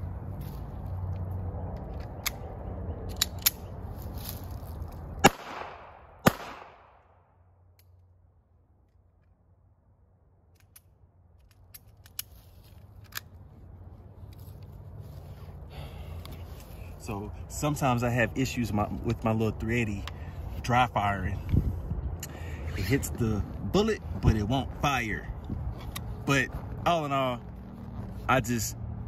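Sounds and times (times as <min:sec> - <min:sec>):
pistol action clicks: 0:03.1 - 0:03.7
pistol shots with echo: 0:05.2 - 0:07.0.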